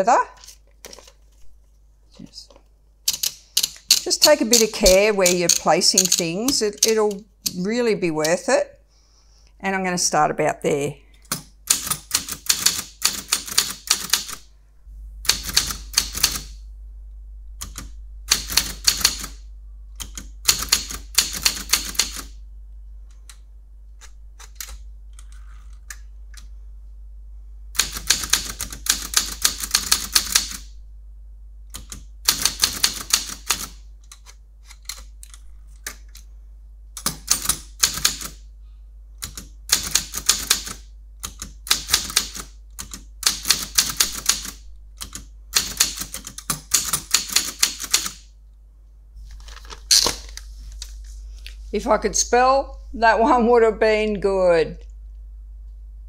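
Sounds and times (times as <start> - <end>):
typewriter keystrokes: 3.1 - 7.6, 11.3 - 14.4, 15.3 - 16.6, 17.6 - 19.4, 20.0 - 22.4, 27.8 - 30.7, 31.7 - 36.2, 37.0 - 38.4, 39.2 - 48.2.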